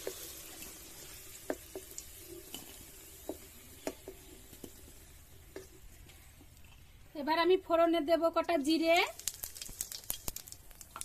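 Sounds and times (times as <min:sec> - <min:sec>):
hot oil sizzling: 0:00.0 - 0:06.4, 0:08.6 - 0:11.0.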